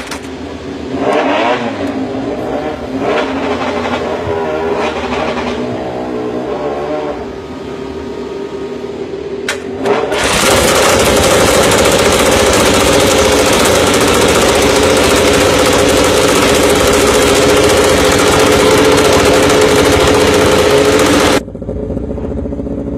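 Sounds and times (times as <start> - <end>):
starter spinning engine: 10.1 - 21.6
motorcycle engine idling loudly: 10.2 - 22.9.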